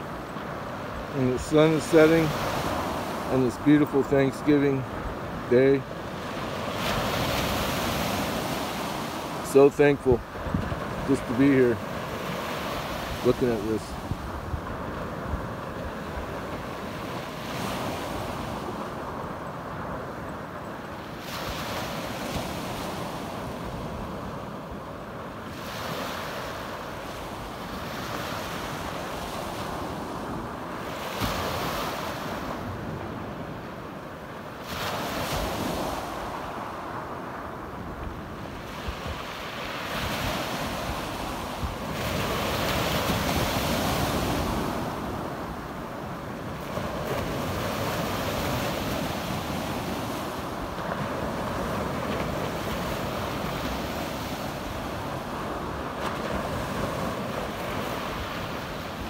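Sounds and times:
wind rumble on microphone: 0:10.2 - 0:11.2.

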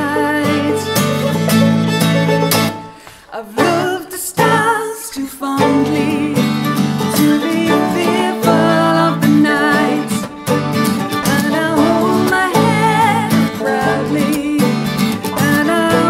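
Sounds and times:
acoustic guitar: 0:00.0 - 0:16.0
banjo: 0:00.0 - 0:16.0
wavering melody with vibrato: 0:05.6 - 0:16.0.

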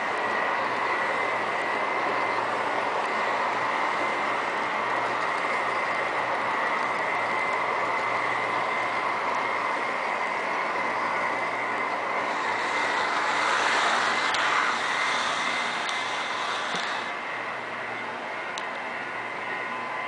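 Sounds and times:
thin steady whine: 0:00.0 - 0:20.0
model train wheels rattling: 0:12.2 - 0:17.1.

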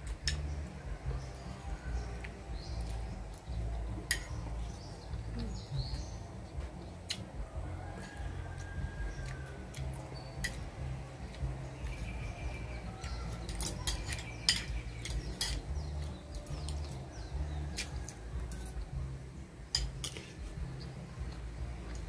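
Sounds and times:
cutlery clinking on plates: 0:04.0 - 0:04.5, 0:13.3 - 0:15.8, 0:19.7 - 0:20.5.

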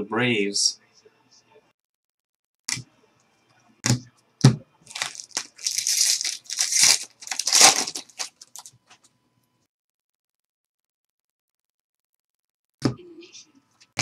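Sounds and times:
card pack wrapper tearing and crinkling: 0:04.9 - 0:08.8.

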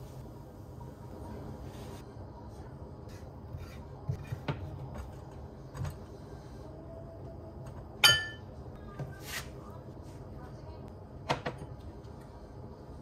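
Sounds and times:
sharp ringing clink: 0:08.0 - 0:08.4.

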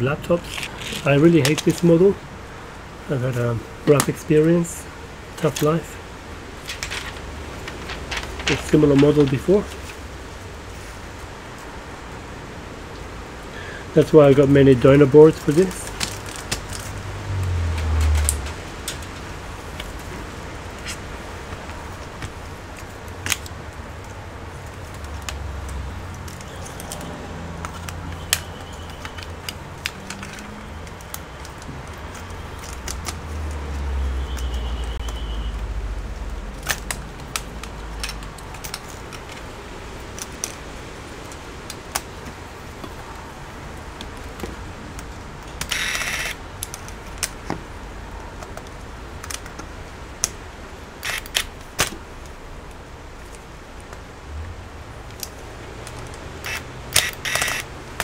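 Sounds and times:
scraping rustle: 0:00.4 - 0:02.0, 0:06.6 - 0:11.7
clicks and knocks of parts: 0:06.6 - 0:10.0, 0:15.3 - 0:17.0, 0:17.7 - 0:35.2, 0:36.4 - 0:43.0, 0:44.0 - 0:47.7, 0:48.3 - 0:50.4, 0:55.1 - 0:58.0.

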